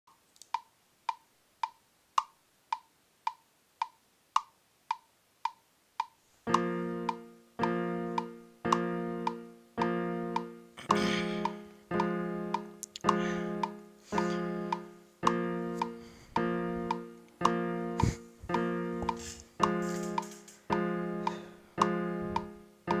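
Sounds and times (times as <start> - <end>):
woody tick beat: 0.1 - 23.0
sustained keyboard chords: 6.5 - 23.0.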